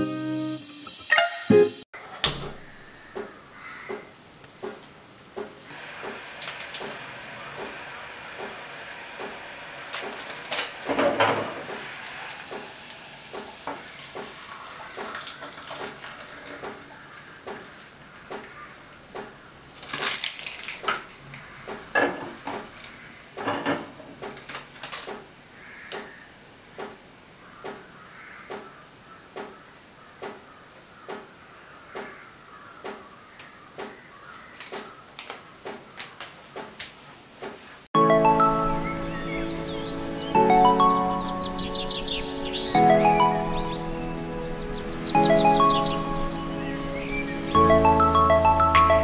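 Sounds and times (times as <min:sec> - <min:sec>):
gas burner hissing: 0:00.5 - 0:01.7, 0:05.6 - 0:14.4
hot water pouring into glass: 0:11.9 - 0:16.5.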